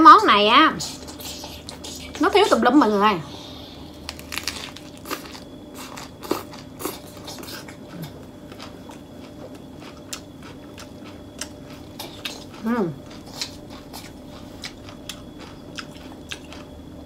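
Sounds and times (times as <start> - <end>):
crisp crunching of lettuce: 3.9 - 16.8.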